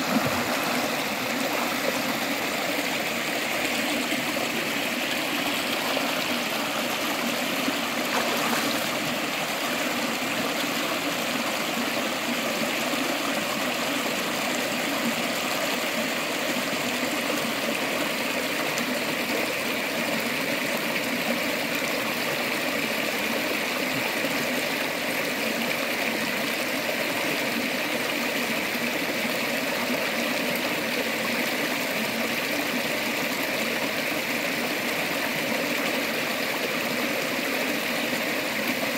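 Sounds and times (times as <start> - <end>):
river flowing over stones: 0.0 - 38.9.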